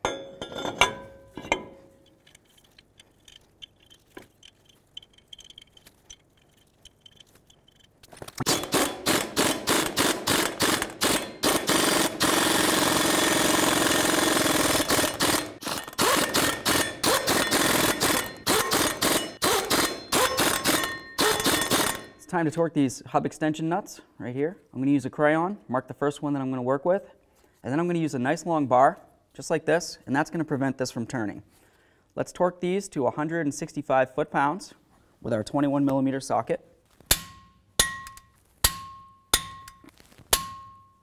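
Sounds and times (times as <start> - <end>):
light metallic clinks: 0.0 - 8.1
pneumatic impact wrench hammering: 8.4 - 22.2.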